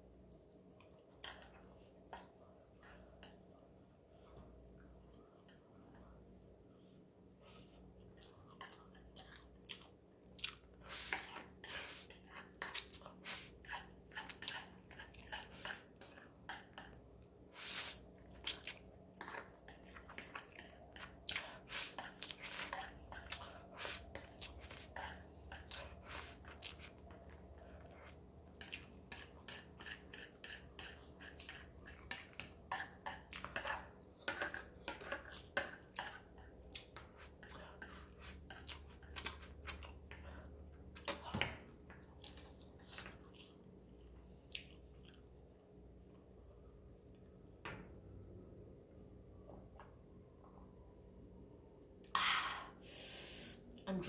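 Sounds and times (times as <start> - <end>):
wet chewing and slurping: 7.4 - 41.3, 41.9 - 45.6.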